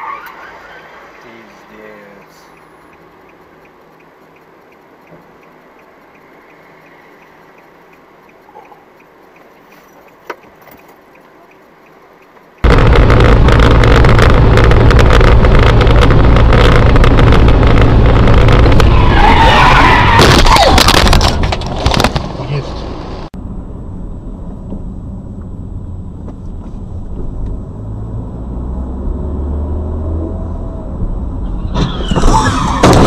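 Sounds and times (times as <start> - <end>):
wavering squeal: 0.0 - 1.2, 31.4 - 33.0
engine and road rumble: 0.0 - 33.0.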